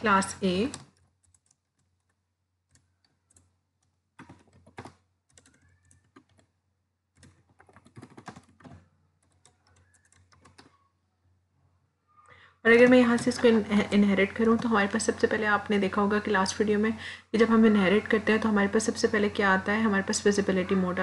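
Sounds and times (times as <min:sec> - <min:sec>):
keyboard typing: 0:00.0 - 0:11.0, 0:12.2 - 0:15.3.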